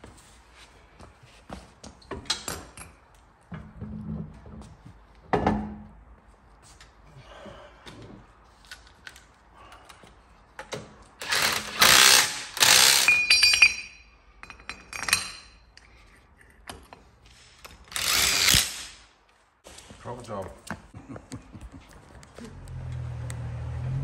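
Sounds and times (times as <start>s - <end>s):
cordless power tool bursts: 11.2s - 13.1s, 17.9s - 18.9s
metal nuts clicking and clinking: 11.2s - 18.7s.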